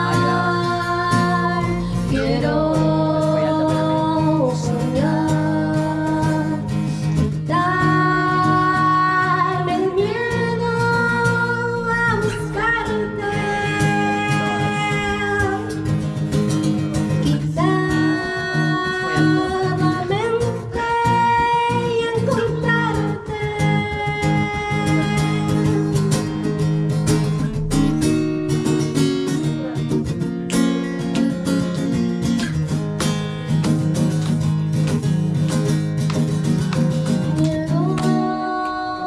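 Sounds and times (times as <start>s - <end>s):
woman singing into microphone: 0.0s - 16.2s, 17.2s - 27.0s, 37.2s - 39.0s
strummed acoustic guitar: 0.0s - 39.0s.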